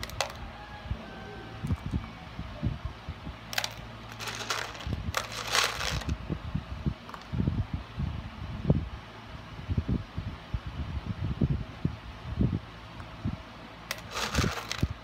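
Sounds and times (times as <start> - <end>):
small beads rattling: 3.5 - 6.1, 13.9 - 15.0.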